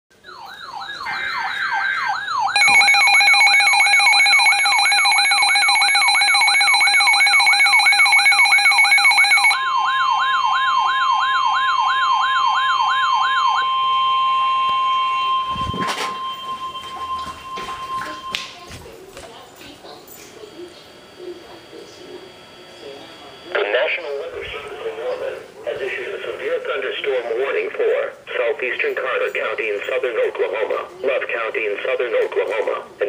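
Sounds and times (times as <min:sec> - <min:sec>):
warbling siren tone: 0:00.2 - 0:18.3
rapid beeping alarm: 0:00.3 - 0:18.4, 0:20.4 - 0:24.0.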